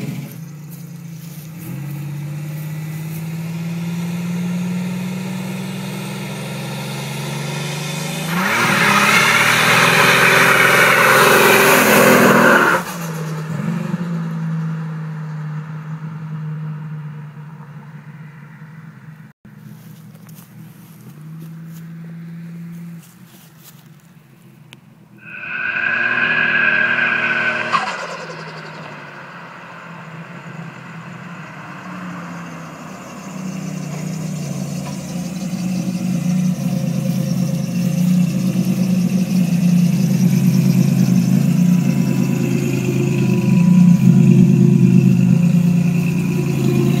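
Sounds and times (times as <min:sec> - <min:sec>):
car passing with high whine: 0:25.1 - 0:47.0
car engine idling: 0:25.2 - 0:47.0.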